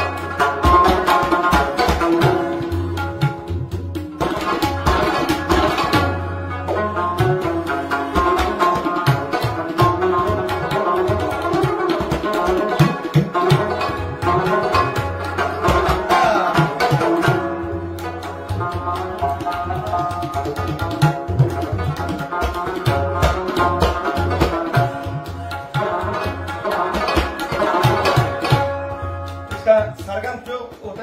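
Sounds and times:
hand drum rhythm: 0.0s - 31.0s
plucked strings: 0.0s - 31.0s.

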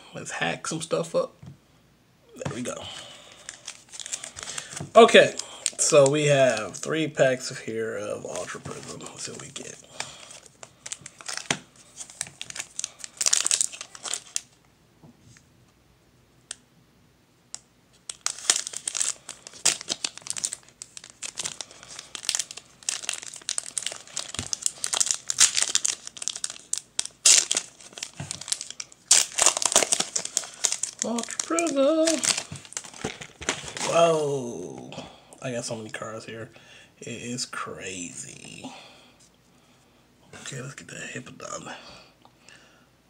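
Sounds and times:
foil wrapper crinkling and tearing: 2.6s - 7.0s, 8.3s - 14.6s, 18.0s - 34.4s.

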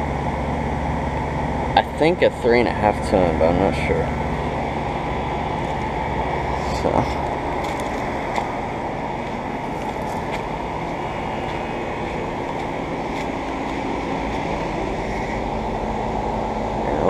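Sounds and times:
air conditioner hum: 0.0s - 17.0s
rush of fan air: 0.0s - 17.0s.

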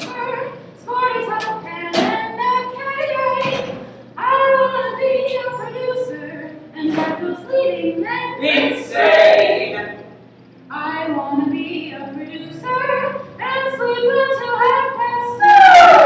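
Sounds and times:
women singing: 0.0s - 10.1s, 10.7s - 16.0s.

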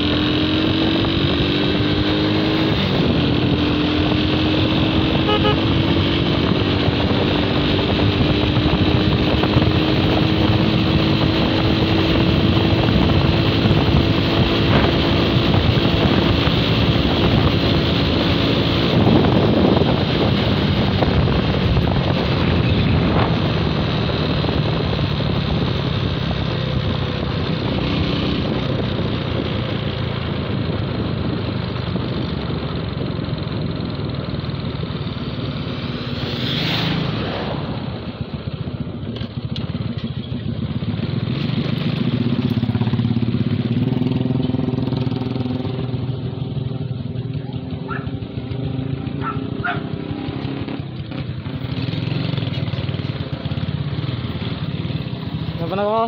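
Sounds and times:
wind rushing over microphone: 0.0s - 33.2s, 35.4s - 39.0s
motorcycle engine running: 0.0s - 56.0s.

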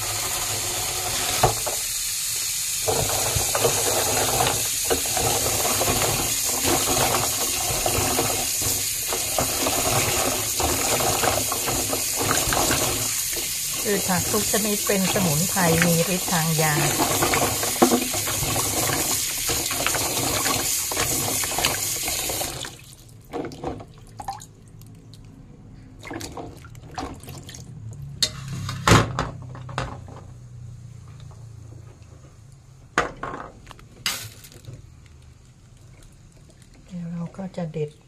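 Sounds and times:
water running into sink: 0.0s - 24.5s
splashes and drips: 9.5s - 25.4s, 26.0s - 28.2s.

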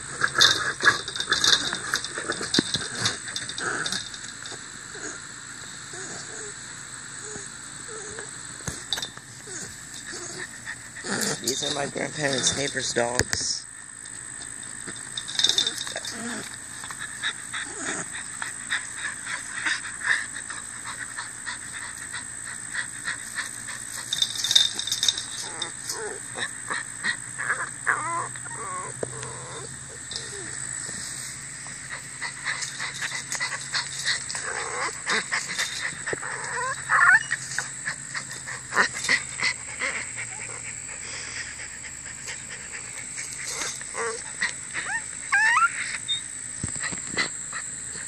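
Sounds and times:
small dogs whimpering: 5.9s - 6.6s, 7.2s - 12.8s, 15.2s - 30.6s, 31.8s - 48.0s.

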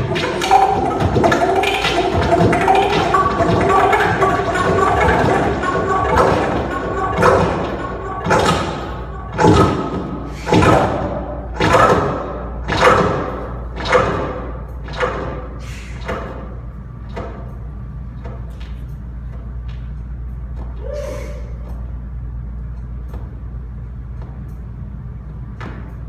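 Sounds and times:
sustained drone: 0.0s - 16.2s
electronic music thudding hits: 0.0s - 20.6s.

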